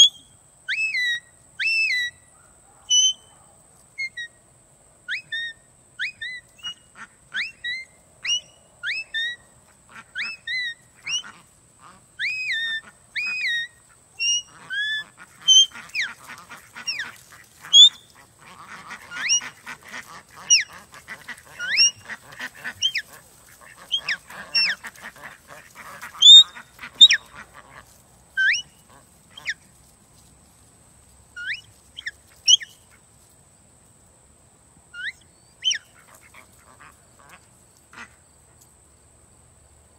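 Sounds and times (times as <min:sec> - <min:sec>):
ducks quacking: 0:06.6 - 0:29.7, 0:35.0 - 0:38.2.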